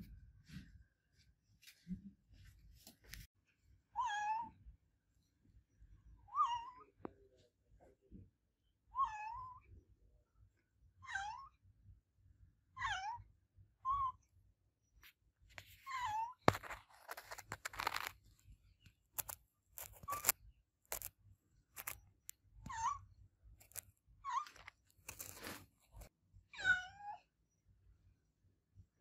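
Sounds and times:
cat meowing: 0:04.0 - 0:04.6, 0:09.0 - 0:09.6, 0:26.5 - 0:27.2.

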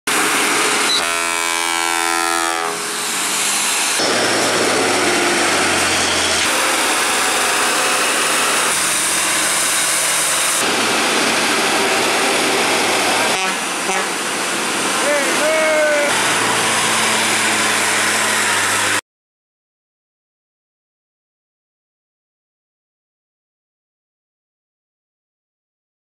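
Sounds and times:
multi-tone truck air horn: 0:00.7 - 0:04.4, 0:13.2 - 0:14.3
dump truck engines climbing: 0:02.9 - 0:19.0.

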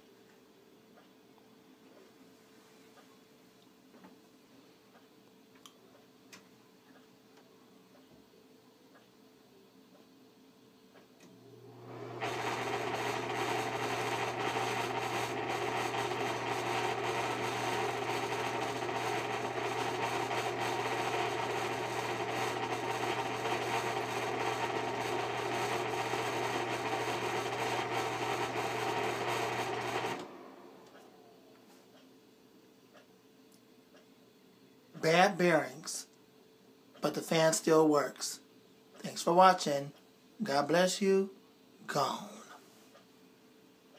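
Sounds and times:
exhaust fan motor humming: 0:11.4 - 0:31.5
scratchy worn fan bearings: 0:12.2 - 0:30.2.

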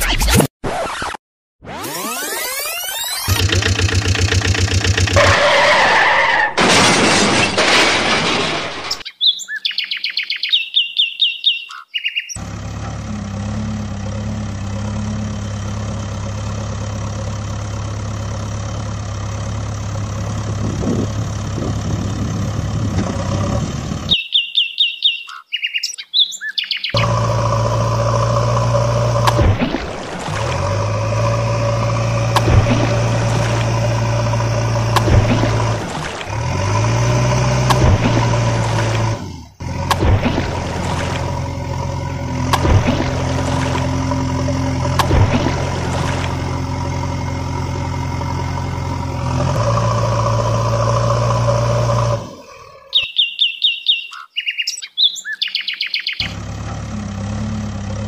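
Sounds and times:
heavy diesel engine drone: 0:03.2 - 0:08.4, 0:12.4 - 0:24.2, 0:27.0 - 0:52.9, 0:56.2 - 0:58.0
high bird chirps: 0:08.9 - 0:12.4, 0:24.1 - 0:27.0, 0:52.9 - 0:56.3.

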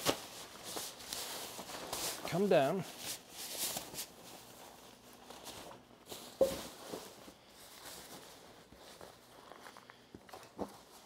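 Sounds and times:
nylon rain cover rustling: 0:00.0 - 0:11.0.

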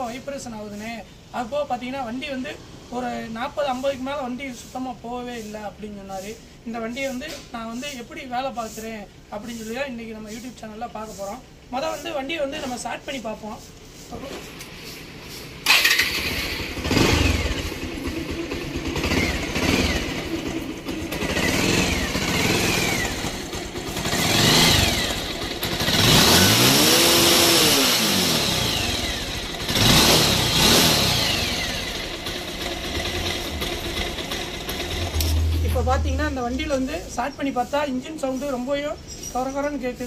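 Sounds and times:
motorcycle engine revving roughly: 0:15.6 - 0:37.9.

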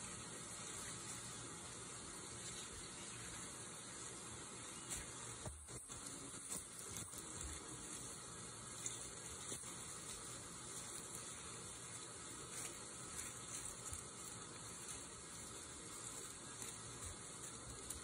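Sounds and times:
steady high hiss: 0:00.0 - 0:18.0
dry leaves crackling: 0:04.7 - 0:18.0.

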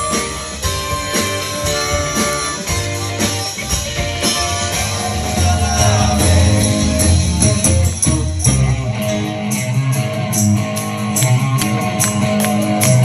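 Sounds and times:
high ticking beat: 0:00.0 - 0:09.0
deep bass: 0:00.0 - 0:13.0
live rock band playing: 0:00.0 - 0:13.0.

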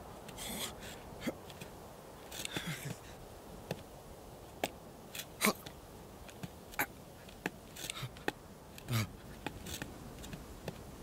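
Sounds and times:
hooves tapping on rock: 0:03.6 - 0:03.9, 0:05.6 - 0:10.9.

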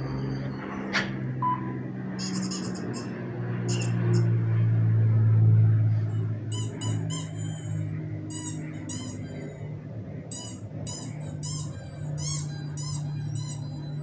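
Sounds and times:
high-pitched squeaks: 0:00.0 - 0:04.3, 0:06.5 - 0:09.7, 0:10.3 - 0:14.0
steady low hum: 0:00.0 - 0:14.0.

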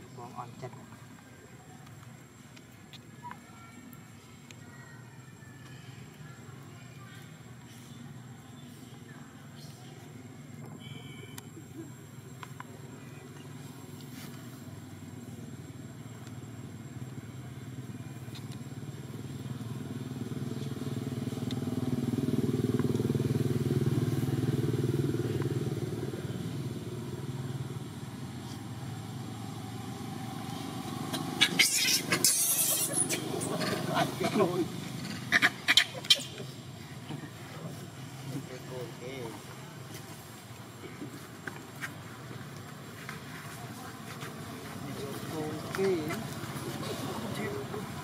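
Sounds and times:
motorbike engine passing by: 0:16.5 - 0:48.0.

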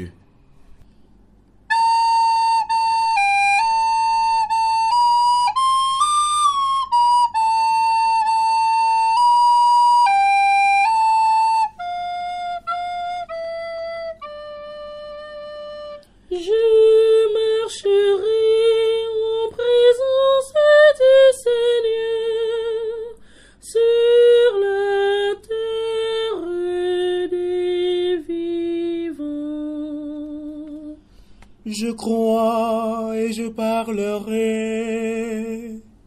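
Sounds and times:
flute holding a note: 0:01.7 - 0:16.9.

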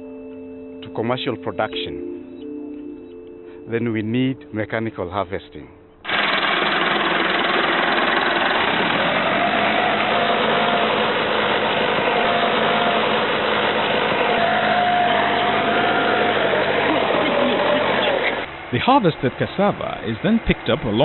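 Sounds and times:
tractor engine running: 0:06.0 - 0:21.0.

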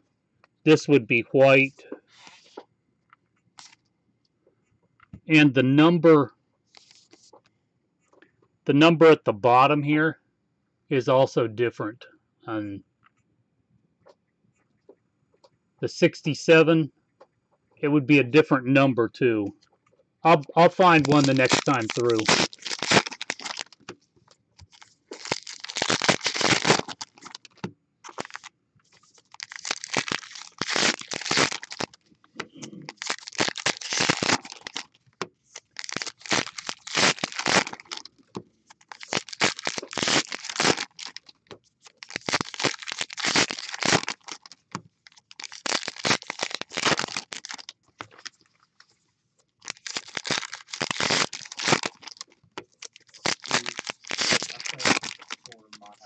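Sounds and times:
foil wrappers tearing and crinkling: 0:20.6 - 0:23.9, 0:24.6 - 0:32.0, 0:32.8 - 0:48.4, 0:49.6 - 0:56.0.

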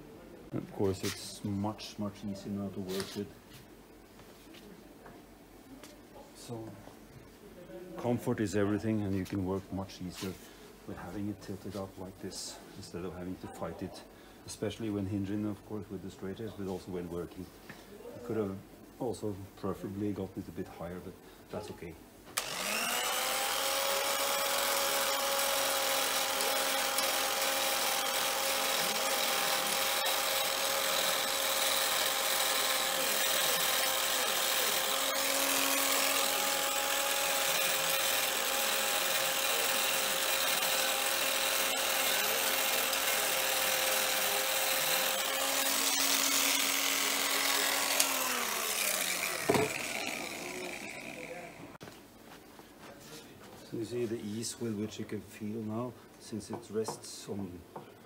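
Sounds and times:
blade scraping metal: 0:22.4 - 0:51.5
power scraper motor whine: 0:22.4 - 0:51.8.

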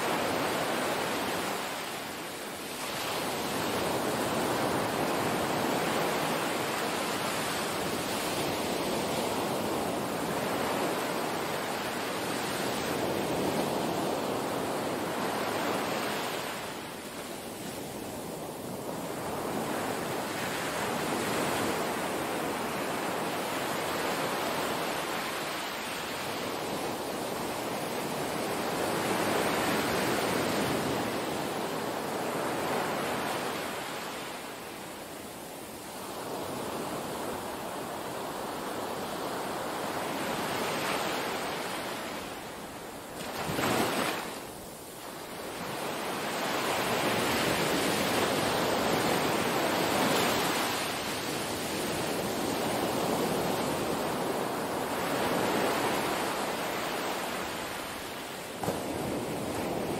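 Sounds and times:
waves washing onto beach: 0:00.0 - 0:59.9.

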